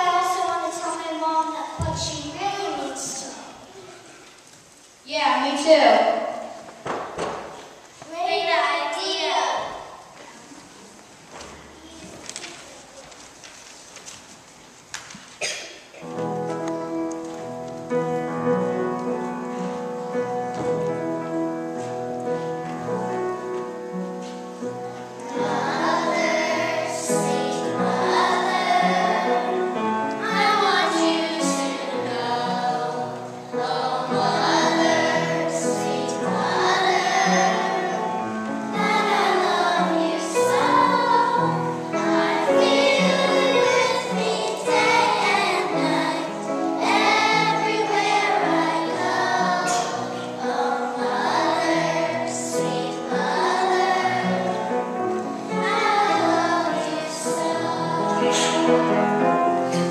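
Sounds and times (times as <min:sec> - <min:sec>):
children's choir singing in unison: 0:00.0 - 0:02.4, 0:15.4 - 0:59.9
piano accompaniment: 0:15.4 - 0:59.9.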